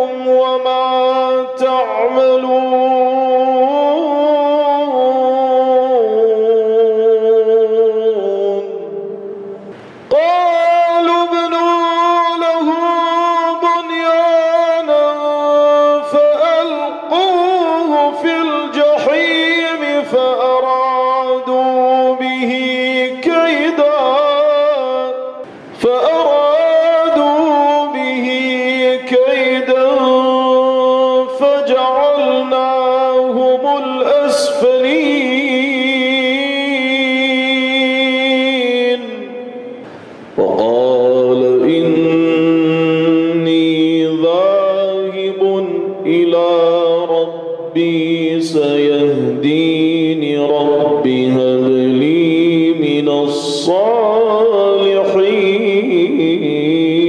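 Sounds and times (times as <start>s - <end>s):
man reciting melodically: 0.0s - 57.0s.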